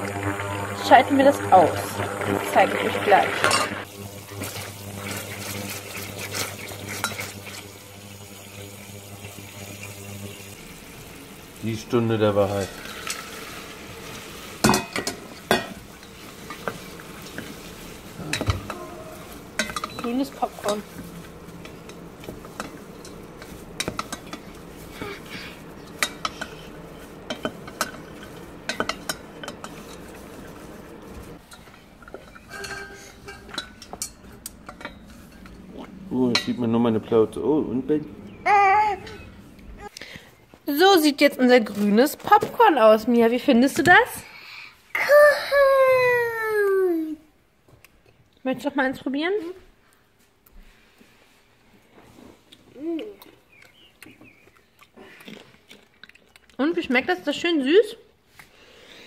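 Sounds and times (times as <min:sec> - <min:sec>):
syrup bubbling: 0:00.0 - 0:36.1
low hum from hob: 0:00.0 - 0:47.6
spoon scraping a pot: 0:03.4 - 0:07.7, 0:12.6 - 0:36.6.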